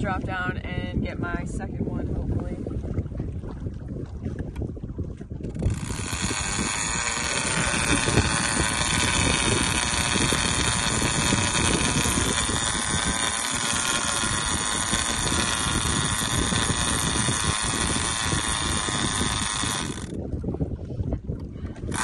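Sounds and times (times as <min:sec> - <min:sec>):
fishing reel spool whirring: 0:05.4 - 0:20.2, 0:21.7 - 0:22.0.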